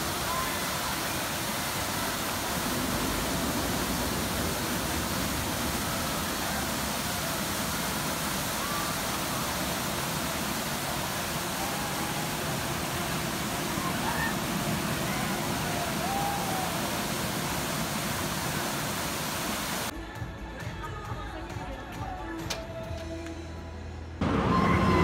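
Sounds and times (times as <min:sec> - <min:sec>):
fountain water splashing: 0:00.0 - 0:19.9
faint high wavering cries: 0:24.3 - 0:25.0.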